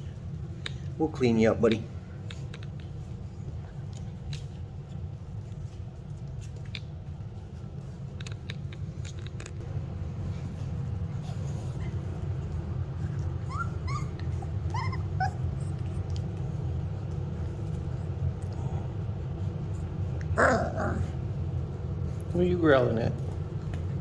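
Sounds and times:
steady low hum: 0.0 - 24.0
puppy yelping: 13.4 - 16.0, 20.3 - 21.1.

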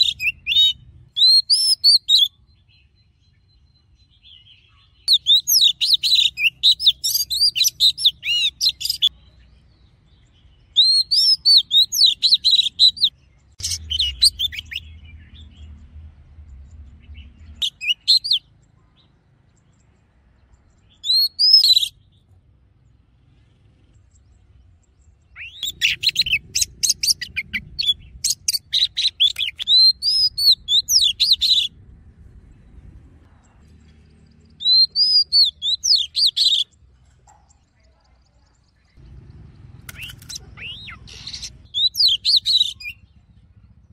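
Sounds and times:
bird whistling and chirping: 0.0 - 2.4, 5.0 - 9.1, 10.7 - 15.3, 17.6 - 18.4, 20.9 - 22.0, 25.4 - 31.7, 34.6 - 36.7, 39.9 - 43.1.

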